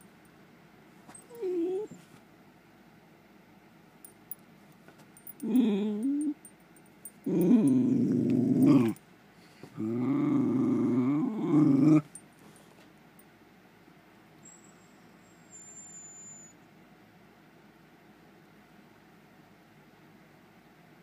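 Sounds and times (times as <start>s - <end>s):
dog growling: 5.3s - 6.4s, 7.2s - 9.0s, 9.7s - 12.2s.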